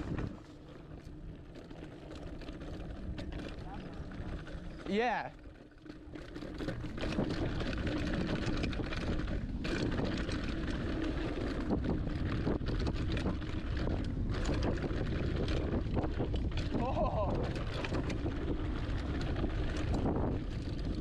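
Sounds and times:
wind buffeting microphone: 0:00.0 - 0:00.5, 0:06.6 - 0:21.0
bike rattling clicks: 0:00.0 - 0:21.0
bike tyres rolling on rough trail: 0:00.0 - 0:21.0.

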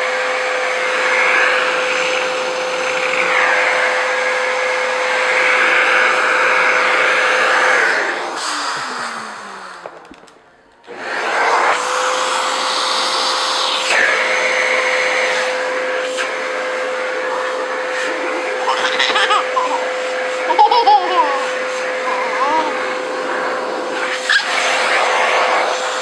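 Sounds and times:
vacuum cleaner whining: 0:00.0 - 0:26.0
toddler laughing: 0:18.4 - 0:23.0.

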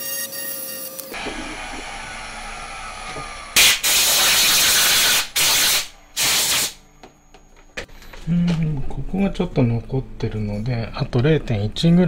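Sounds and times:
spindle winding down whine: 0:00.6 - 0:06.2
compressed-air blow gun blasting: 0:01.2 - 0:06.8.

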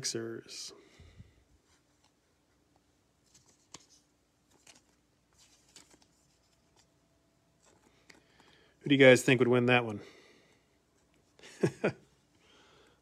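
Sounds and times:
trading cards rustling and clicking: 0:02.8 - 0:07.0, 0:07.6 - 0:08.8.

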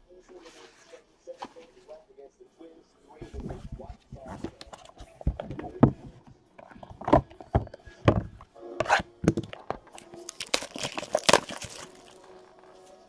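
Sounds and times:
plastic wrap crinkling and tearing: 0:08.9 - 0:12.8.

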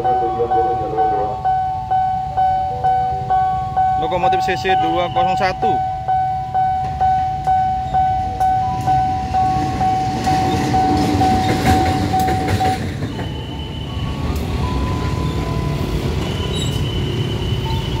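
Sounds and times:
diesel locomotive rumbling past: 0:00.0 - 0:18.0
high steady beeps: 0:00.0 - 0:18.0
level-crossing warning bell ringing: 0:00.0 - 0:18.0
motorbike engines: 0:07.8 - 0:18.0.

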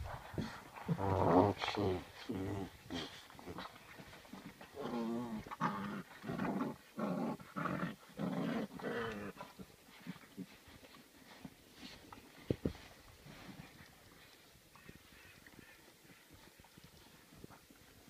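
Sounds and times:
puppies play-growling: 0:00.1 - 0:13.8.

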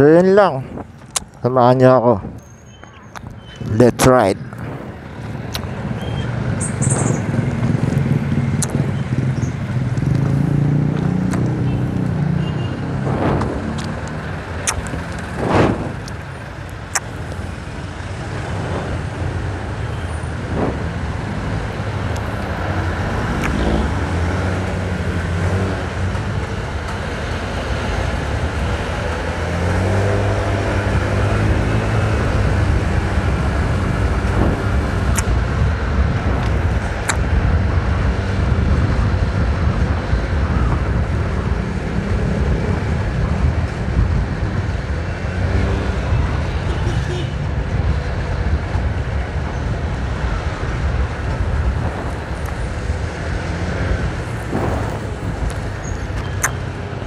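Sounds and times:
passing traffic sharp sounds: 0:00.0 - 0:57.0
wind and road noise: 0:00.0 - 0:57.0
motorcycle engine: 0:04.5 - 0:38.9.

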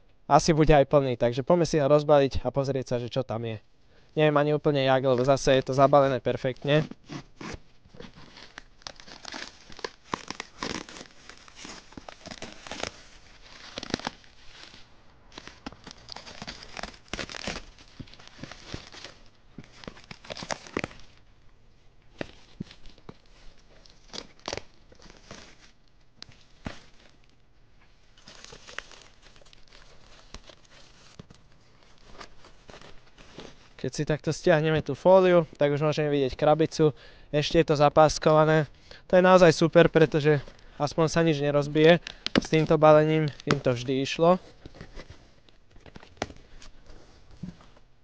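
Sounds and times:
plastic film crinkling and tearing: 0:05.1 - 0:21.3, 0:22.1 - 0:27.4, 0:28.0 - 0:33.8, 0:39.5 - 0:47.7.

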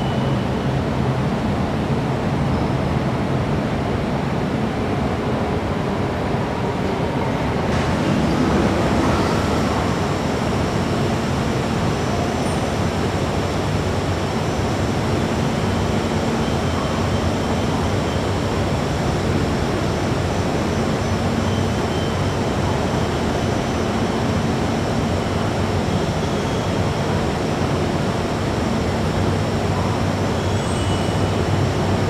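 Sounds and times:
metro station roar: 0:00.0 - 0:32.0.

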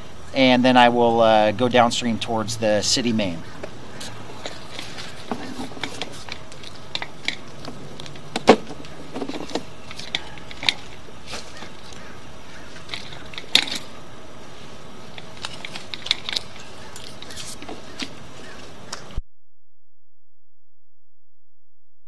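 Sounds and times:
steady hiss: 0:00.0 - 0:19.2
cable clicks and knocks: 0:04.4 - 0:12.0, 0:12.8 - 0:14.0, 0:15.1 - 0:18.2.

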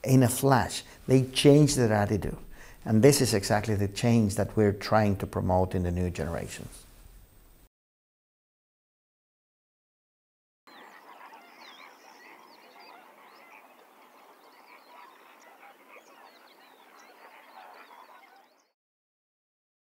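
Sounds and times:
animals squeaking and chirping: 0:10.7 - 0:18.7.

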